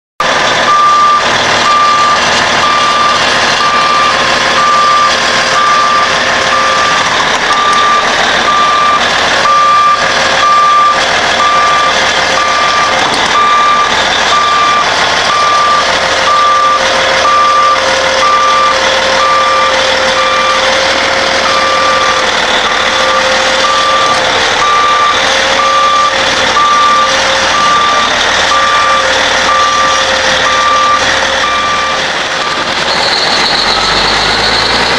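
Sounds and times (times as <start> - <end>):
heavy diesel machinery running: 0.2 - 34.9
backup alarm beeping: 0.7 - 32.6.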